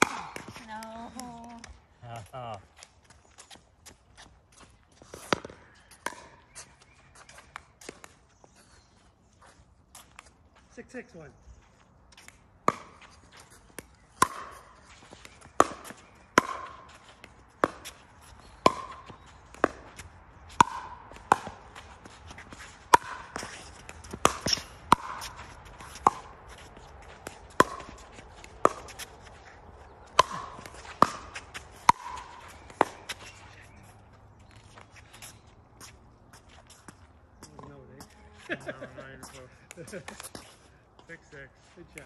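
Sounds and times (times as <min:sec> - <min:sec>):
ball bouncing on hard court: 0:05.1 - 0:06.5, 0:14.2 - 0:33.8
ball popping off paddles: 0:15.5 - 0:16.8, 0:18.6 - 0:21.6, 0:27.2 - 0:29.1, 0:30.1 - 0:33.4.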